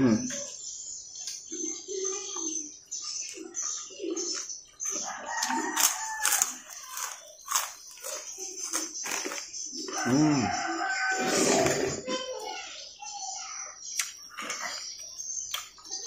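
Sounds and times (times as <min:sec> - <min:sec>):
chewing: 0:03.2 - 0:12.1, 0:14.0 - 0:16.0
lip smacks: 0:14.0 - 0:14.8.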